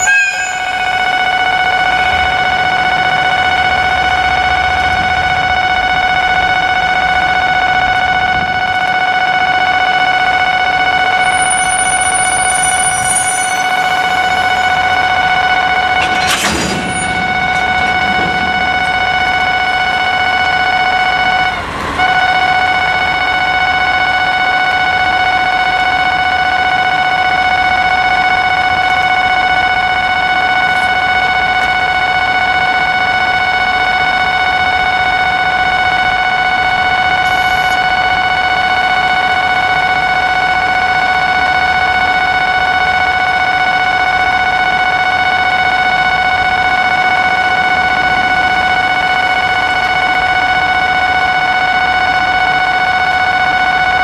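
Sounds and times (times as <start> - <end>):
level crossing alarm ringing: 0.0 - 54.0
heavy clunk: 15.8 - 20.9.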